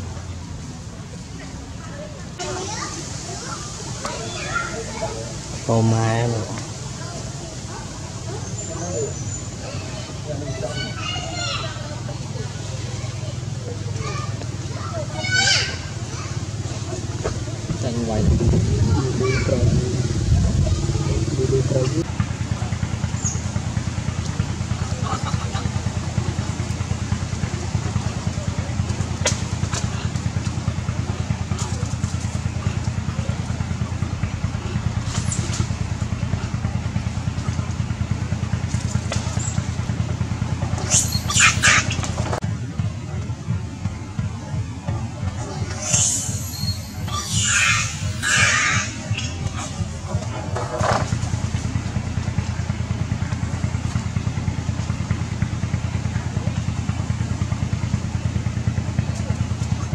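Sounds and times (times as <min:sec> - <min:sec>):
small engine idling: 0:00.0 - 0:59.9
short high squeak: 0:40.8 - 0:42.0, 0:45.7 - 0:49.3.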